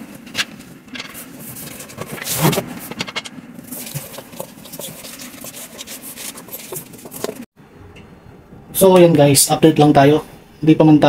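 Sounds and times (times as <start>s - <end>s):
cardboard rustling and scraping: 0.2s - 7.5s.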